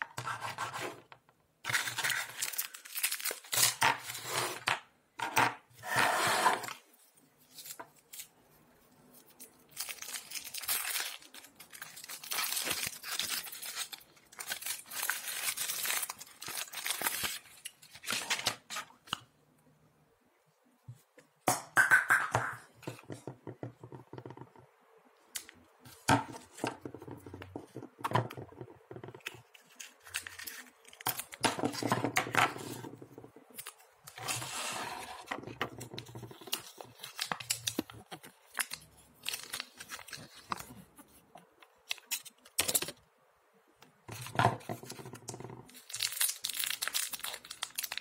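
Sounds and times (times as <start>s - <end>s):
foil wrapper crinkling and tearing: 1.7s - 3.8s, 9.5s - 18.6s, 29.3s - 31.4s, 36.4s - 40.7s, 45.7s - 48.0s.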